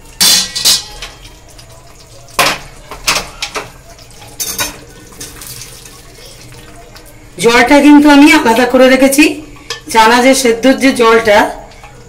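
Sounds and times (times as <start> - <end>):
metal pots clanking: 0.0 - 7.1, 9.5 - 10.0, 10.8 - 12.0.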